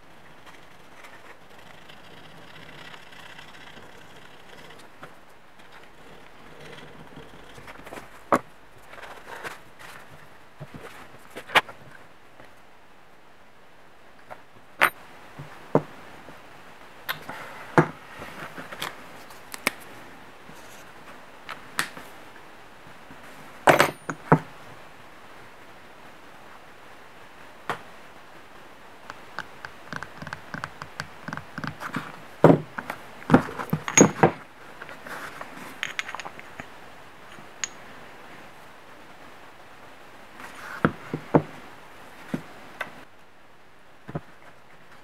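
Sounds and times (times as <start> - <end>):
parts clicking and knocking: 29.1 - 34.4, 35.8 - 37.8.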